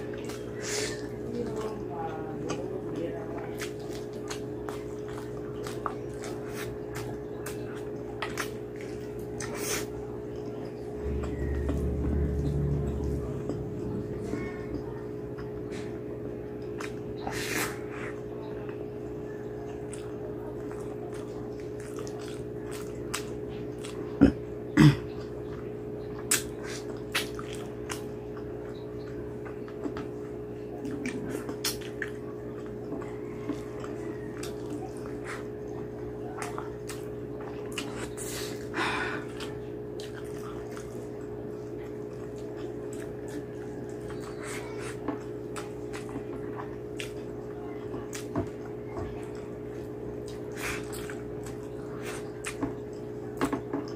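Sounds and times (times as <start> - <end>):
wet chewing and lip smacks: 2.4 - 16.0, 16.6 - 18.8, 19.6 - 24.2, 25.2 - 53.9
low hum: 10.1 - 20.7.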